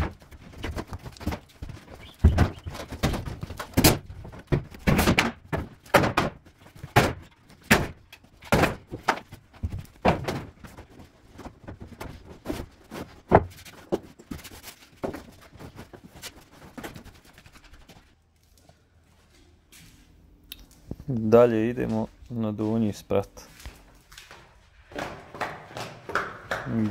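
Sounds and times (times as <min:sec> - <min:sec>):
heavy thuds of wooden furniture: 0:00.0 - 0:10.7.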